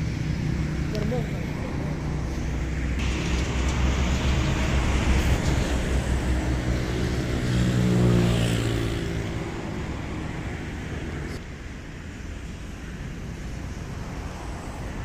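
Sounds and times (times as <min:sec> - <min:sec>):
motor engine rumbling: 0:00.0 - 0:11.4.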